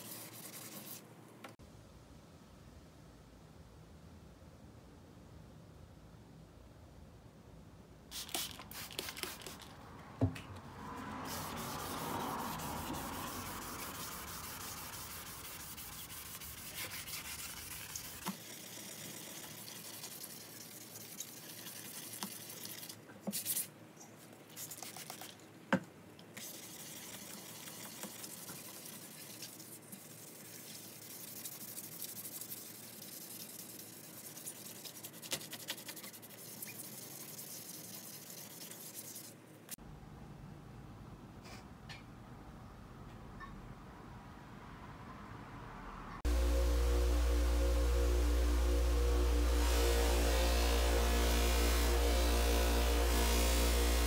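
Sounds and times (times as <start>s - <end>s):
sandpaper rubbing on saw blade: 0.0s - 1.0s, 11.2s - 22.6s, 28.2s - 39.4s.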